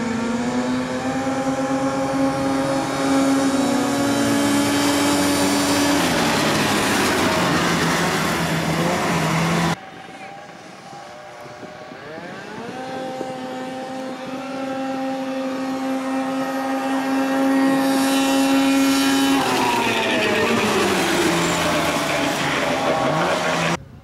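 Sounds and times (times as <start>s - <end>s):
racing engines at full throttle: 0.0s - 24.0s.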